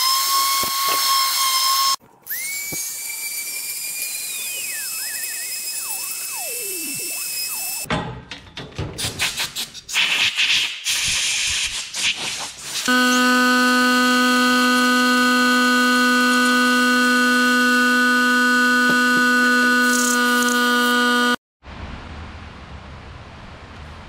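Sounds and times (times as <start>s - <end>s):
rotary tool high-pitched hum: 0.0s - 7.9s, 12.9s - 21.4s.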